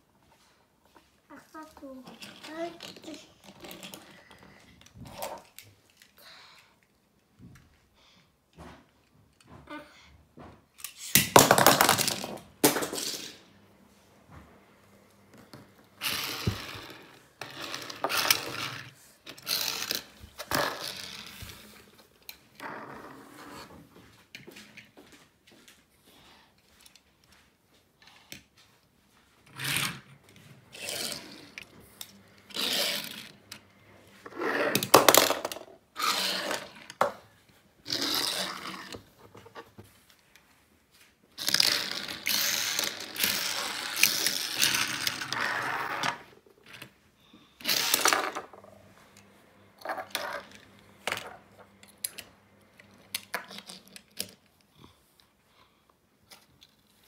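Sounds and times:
toy cars scraping on wood: 0:01.8 - 0:06.1, 0:16.0 - 0:23.8, 0:29.4 - 0:33.6, 0:34.2 - 0:37.1, 0:37.8 - 0:39.8, 0:41.4 - 0:46.9, 0:47.6 - 0:48.7, 0:49.8 - 0:51.4
toy cars clinking: 0:02.0 - 0:06.2, 0:16.0 - 0:21.6, 0:30.7 - 0:33.6, 0:34.3 - 0:37.1, 0:37.8 - 0:39.0, 0:41.4 - 0:46.9, 0:47.6 - 0:48.6, 0:53.1 - 0:54.5.

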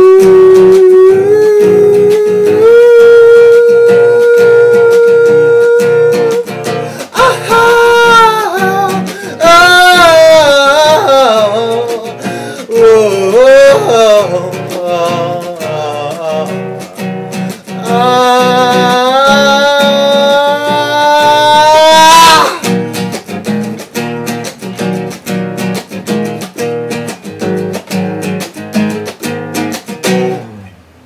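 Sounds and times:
man singing wordless melody: 0:00.0 - 0:22.8
strummed classical guitar: 0:00.0 - 0:31.0.

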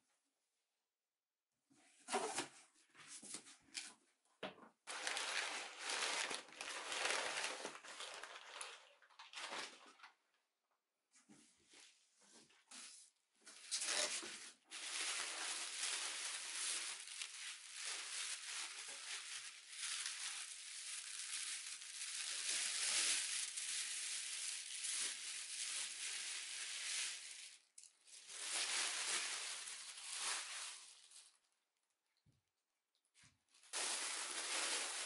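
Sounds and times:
packing paper crinkling: 0:04.9 - 0:09.8, 0:13.6 - 0:31.5, 0:33.6 - 0:35.0.

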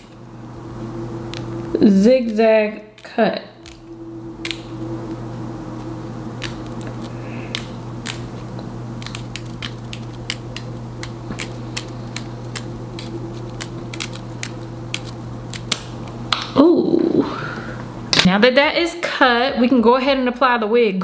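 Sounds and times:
steady low hum: 0:00.0 - 0:20.5
shears snipping lace: 0:01.3 - 0:04.7, 0:06.4 - 0:15.9.

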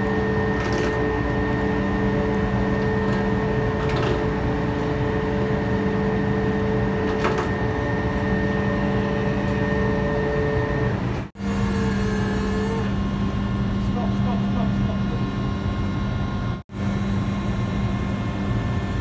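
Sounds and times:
electric winch running: 0:00.0 - 0:19.0.

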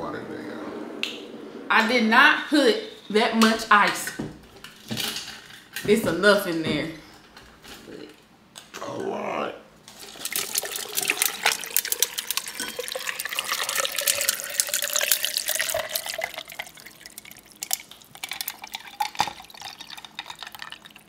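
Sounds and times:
ice clicking: 0:09.9 - 0:21.0
water pouring into glass: 0:10.0 - 0:21.0.

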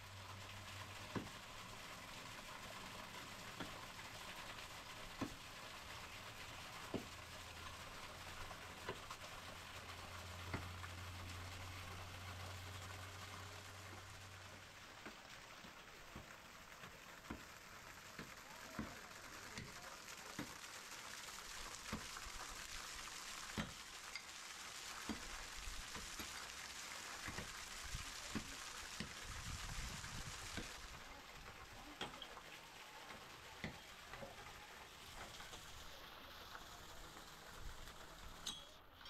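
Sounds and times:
waterfall splashing over rock: 0:00.0 - 0:38.4.

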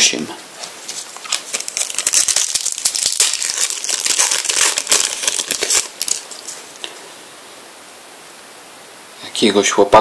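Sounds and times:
foil wrapper crinkling: 0:00.8 - 0:06.9.

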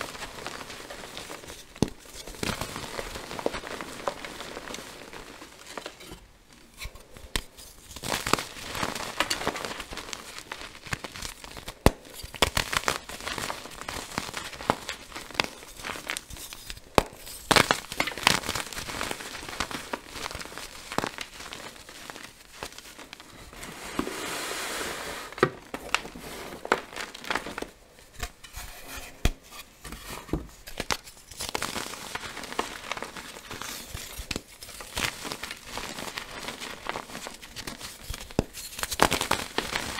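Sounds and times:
soft rustling: 0:19.5 - 0:30.6.

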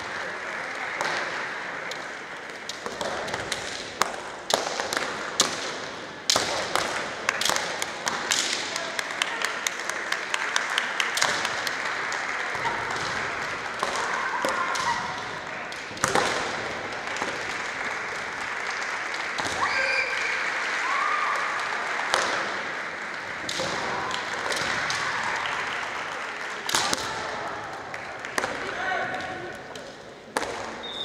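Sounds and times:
bamboo swords clacking: 0:02.7 - 0:08.8
people shouting: 0:13.7 - 0:15.5, 0:19.4 - 0:21.6.

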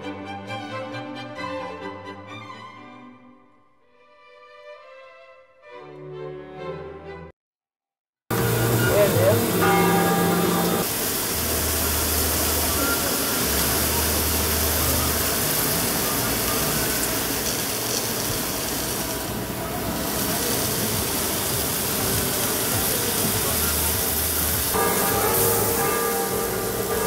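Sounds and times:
music with bell-like tones: 0:08.4 - 0:10.9, 0:11.5 - 0:17.5, 0:22.4 - 0:27.0
meat sizzling on a griddle: 0:08.4 - 0:27.0.

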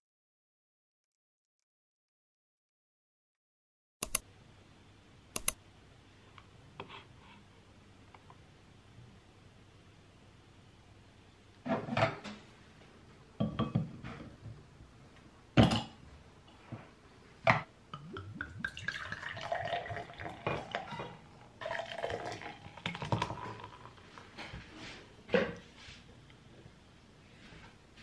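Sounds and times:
beer pouring into glass: 0:18.0 - 0:24.2.

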